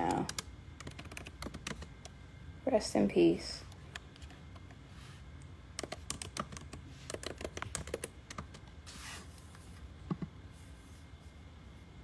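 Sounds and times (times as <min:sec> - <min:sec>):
keyboard typing taps: 0:10.1 - 0:10.3.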